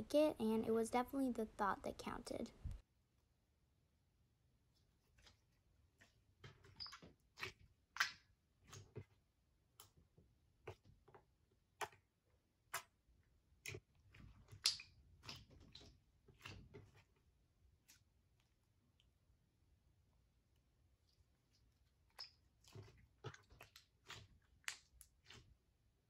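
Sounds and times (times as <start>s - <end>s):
slime squeezed with sticky pops: 13.6s - 17.0s.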